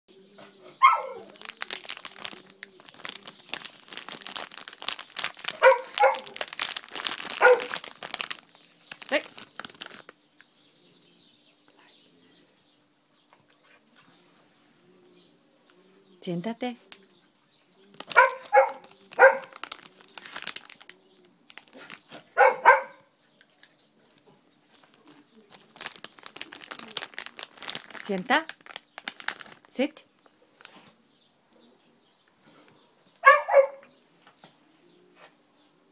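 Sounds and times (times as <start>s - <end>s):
small dog yapping: 0.8s - 1.4s, 5.5s - 6.4s, 7.4s - 7.7s, 18.1s - 19.6s, 22.4s - 23.1s, 33.2s - 33.9s
crinkling rustle: 0.8s - 11.3s, 16.8s - 31.3s.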